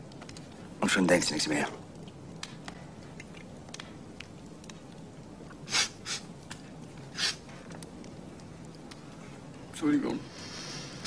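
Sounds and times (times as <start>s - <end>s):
low background hum: 0.0s - 11.0s
man sniffling while crying: 5.7s - 6.2s.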